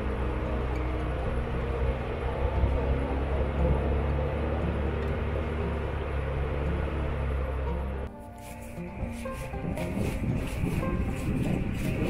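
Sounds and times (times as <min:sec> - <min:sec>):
engine running with low rumble: 0:00.0 - 0:12.0.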